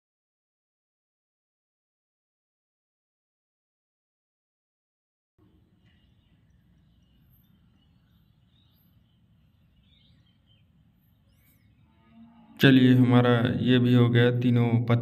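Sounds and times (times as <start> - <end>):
faint chirps: 5.4 - 12.7.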